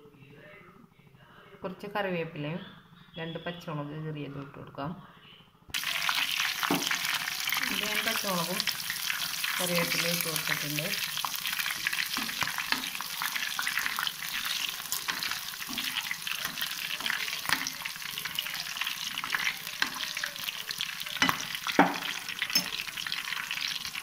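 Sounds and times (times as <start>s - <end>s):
leaves and chillies sizzling in oil: 5.7s - 24.0s.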